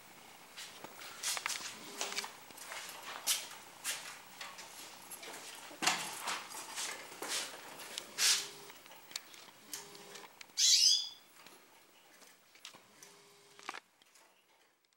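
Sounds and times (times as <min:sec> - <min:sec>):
soft rustles: 0:00.5 - 0:09.6
finch chirp: 0:10.6 - 0:11.3.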